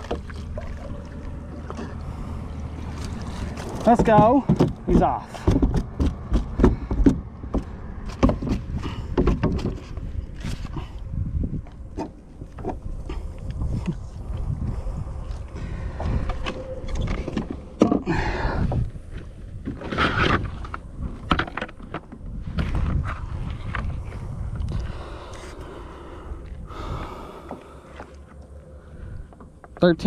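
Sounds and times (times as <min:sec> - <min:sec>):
steady low rumble: 0:00.0 - 0:30.0
knocks against kayak hull: 0:03.8 - 0:09.8.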